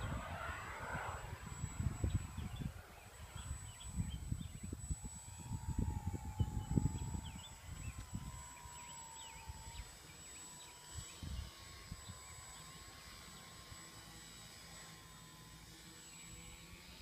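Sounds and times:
wind buffeting microphone: 0.0 - 10.0, 10.9 - 12.4
model aircraft motor whine: 0.0 - 17.0.

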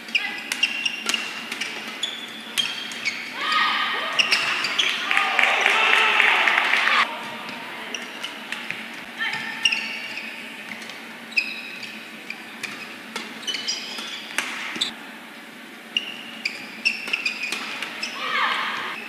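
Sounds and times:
court shoes squeaking: 0.0 - 5.2, 7.0 - 19.0
rackets hitting shuttlecock: 12.6 - 14.9, 16.9 - 18.0.

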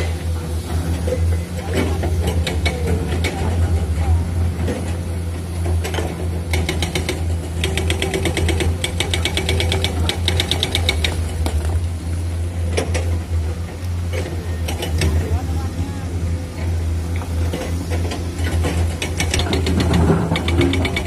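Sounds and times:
excavator diesel engine running: 0.0 - 21.0
fast clicking rattle: 18.4 - 21.0.

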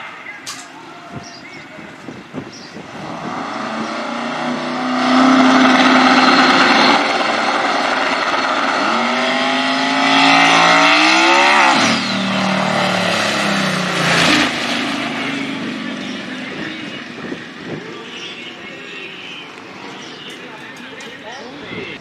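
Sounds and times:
drag racing engine revving: 2.8 - 18.3.

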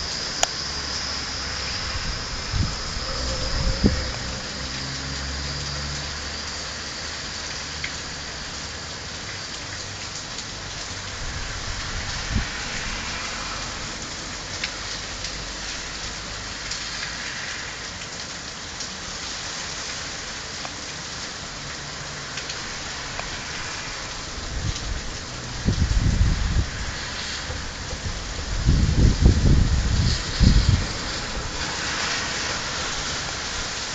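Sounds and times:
heavy rain falling: 0.0 - 33.9
low rumbles: 1.6 - 5.1.

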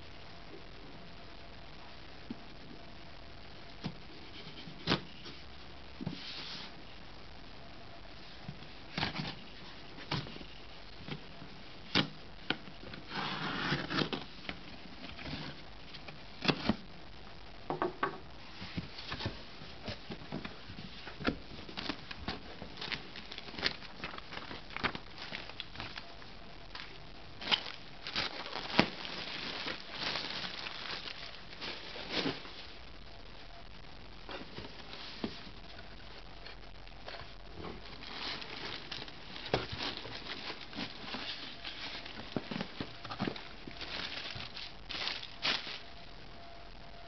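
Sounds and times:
cardboard crinkling and tearing: 8.9 - 16.8, 18.6 - 32.8, 37.2 - 45.9.

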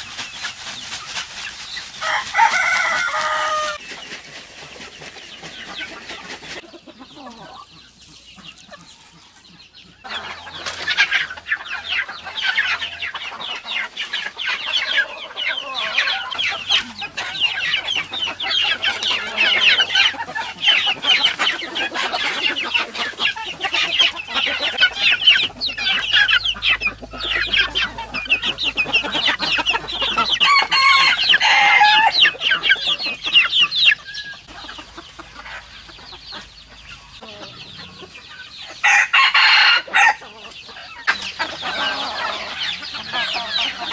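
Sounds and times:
chickens clucking: 0.0 - 43.9.

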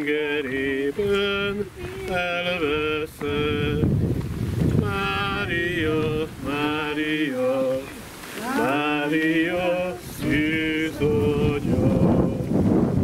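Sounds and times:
person singing a chant: 0.0 - 4.0, 4.8 - 12.6
breaths: 7.9 - 8.5.

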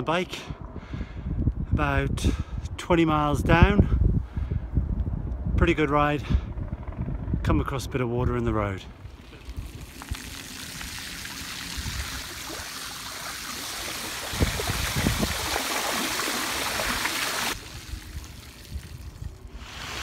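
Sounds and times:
bicycle tyres splashing through water: 9.1 - 20.0.

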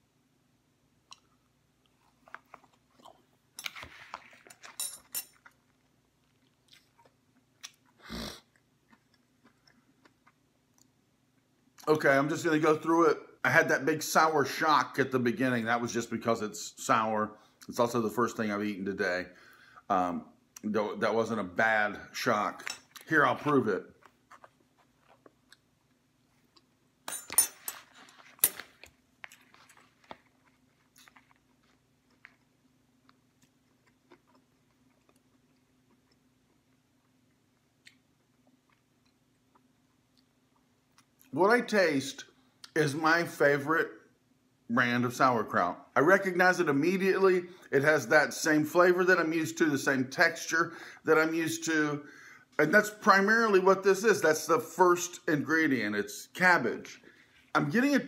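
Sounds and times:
soft chewing crunches: 1.0 - 11.9, 22.8 - 26.8, 27.6 - 41.4.

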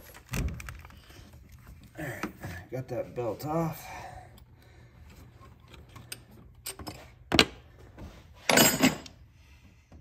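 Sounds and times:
metal tools jangling clatter: 8.5 - 9.1.

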